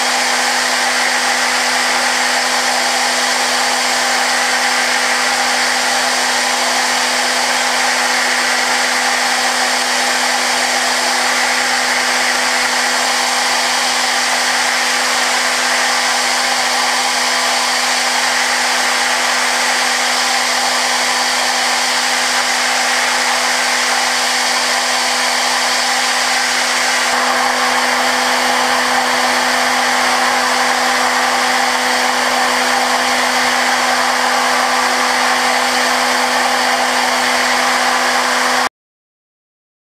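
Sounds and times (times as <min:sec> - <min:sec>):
milling machine humming and whining: 0:00.0 - 0:38.7.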